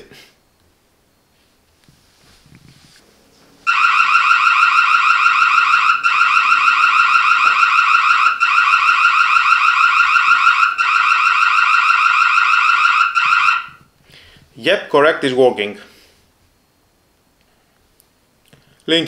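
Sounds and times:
warbling electronic alarm: 0:03.7 - 0:13.8.

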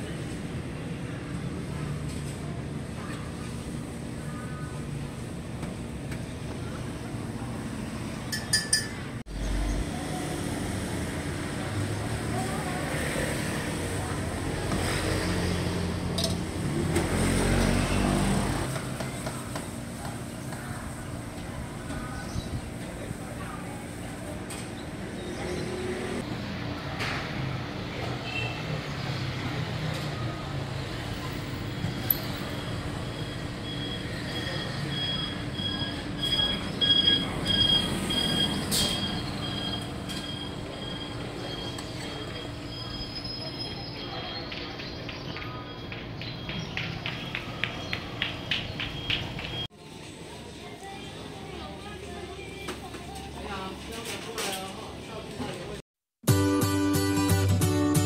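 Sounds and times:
street traffic: 0:00.0 - 0:58.0
light metal clinks: 0:32.0 - 0:32.4.

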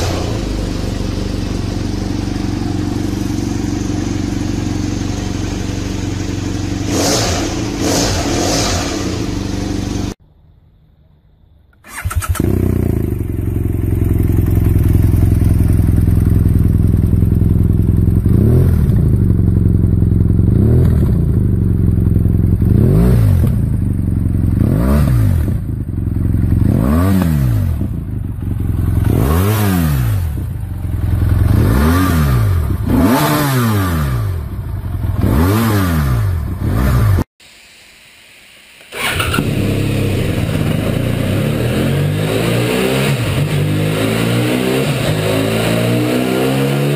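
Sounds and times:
engine running steadily: 0:00.0 - 0:10.2, 0:11.9 - 0:35.4
motorcycle engine revving: 0:00.0 - 0:10.2, 0:11.8 - 0:37.3, 0:38.9 - 0:46.9.

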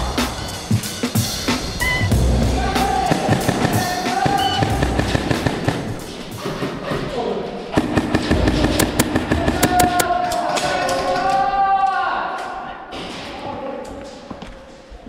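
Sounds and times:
background music with beat: 0:00.0 - 0:06.4, 0:07.8 - 0:10.1
airsoft rifle shots: 0:03.1 - 0:06.0, 0:07.8 - 0:10.1.

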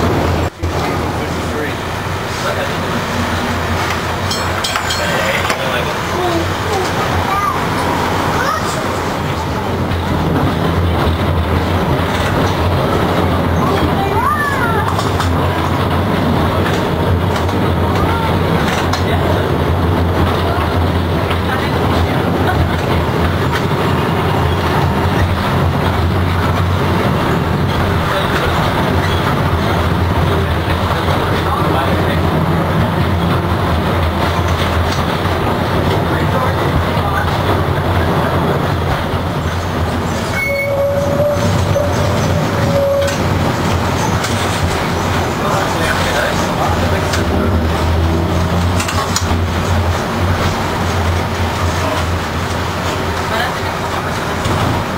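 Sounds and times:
streetcar rolling rumble: 0:00.0 - 0:54.9
steel wheels squealing on rail: 0:39.5 - 0:44.6.

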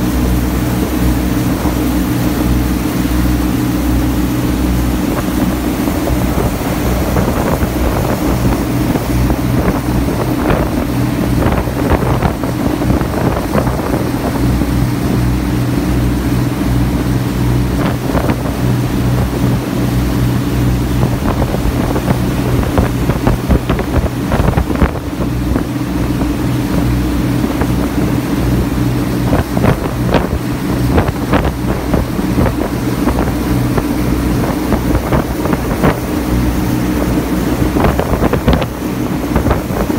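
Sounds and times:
boat engine droning: 0:00.0 - 0:39.9
rushing water from wake: 0:00.0 - 0:39.9
wind buffeting microphone: 0:00.0 - 0:39.9.

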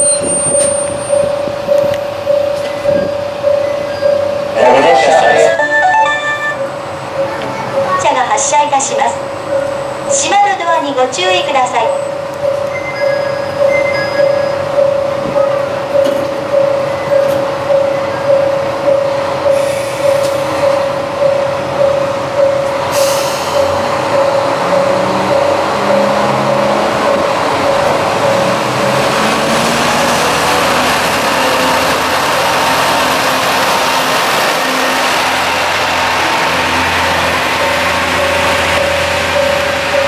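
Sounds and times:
repeating ding: 0:00.0 - 0:07.4, 0:11.9 - 0:18.5
diesel railcar engines: 0:00.0 - 0:40.0.

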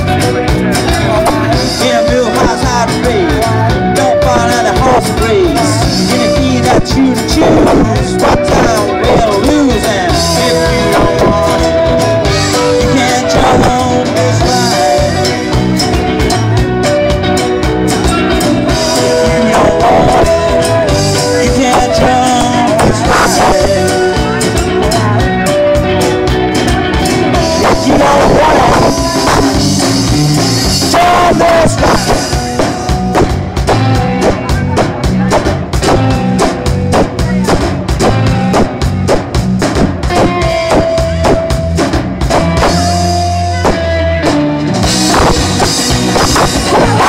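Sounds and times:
drum kit: 0:00.0 - 0:47.0
electric guitars: 0:00.0 - 0:47.0
keyboard: 0:00.0 - 0:47.0.

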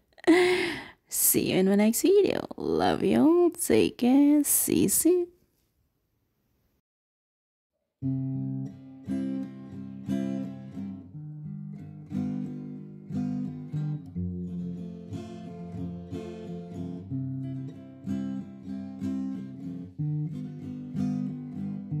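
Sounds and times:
acoustic guitar chords: 0:08.0 - 0:22.0.

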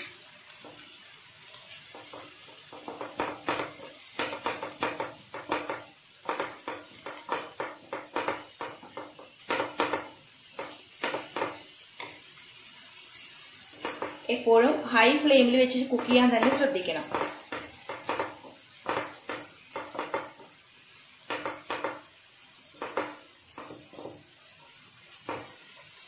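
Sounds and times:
wooden spatula scraping a pan: 0:00.0 - 0:12.2, 0:13.1 - 0:20.6, 0:22.7 - 0:26.0
vegetables sizzling: 0:00.0 - 0:26.0.

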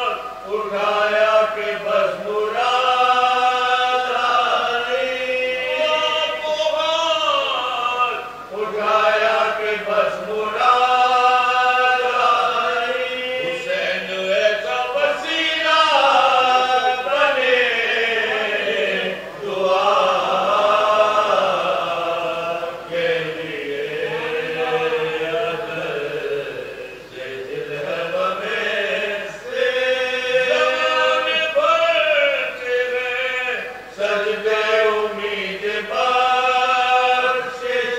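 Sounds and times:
men chanting unaccompanied: 0:00.0 - 0:37.9.

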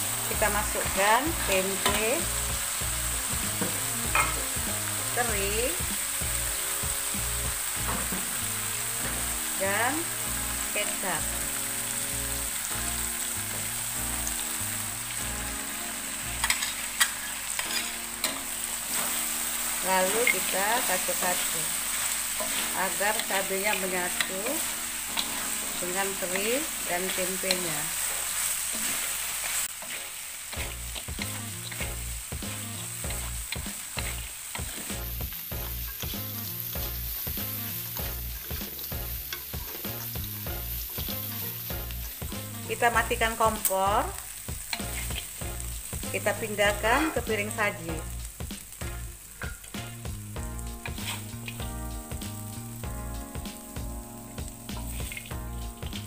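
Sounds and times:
food sizzling in a wok: 0:00.0 - 0:56.0
metal utensil clicking on pan: 0:01.5 - 0:02.1, 0:03.6 - 0:04.4, 0:16.4 - 0:19.2, 0:22.4 - 0:25.5, 0:26.2 - 0:27.7, 0:32.8 - 0:34.9, 0:38.4 - 0:40.2, 0:44.6 - 0:45.3, 0:49.4 - 0:49.8, 0:50.8 - 0:51.6.

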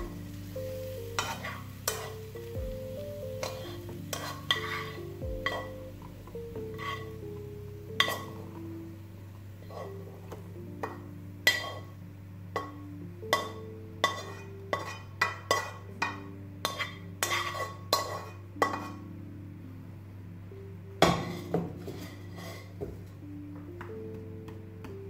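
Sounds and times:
spatula tapping a frying pan: 0:12.6 - 0:18.9.

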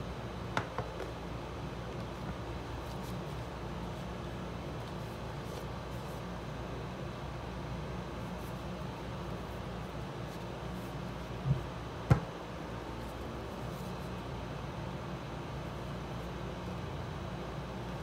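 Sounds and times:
low background hum: 0:00.0 - 0:18.0.

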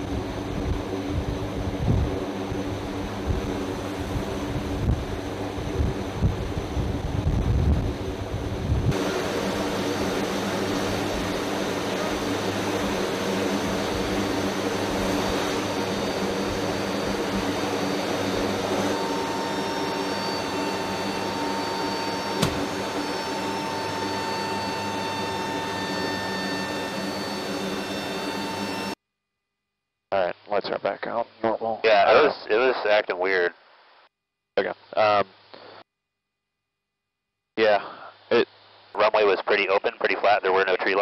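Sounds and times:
aircraft turbine engines whining: 0:00.0 - 0:29.0
wind buffeting microphone: 0:03.2 - 0:09.0.

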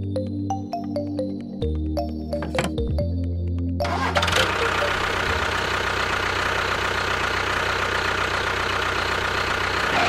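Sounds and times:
small engine rattling: 0:03.8 - 0:10.0.

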